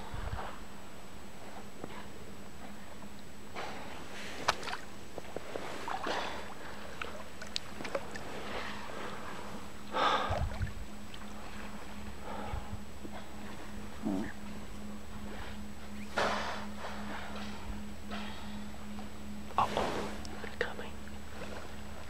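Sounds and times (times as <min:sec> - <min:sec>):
water sloshing around a kayak: 0:02.6 - 0:17.7
water splashes: 0:04.4 - 0:09.5.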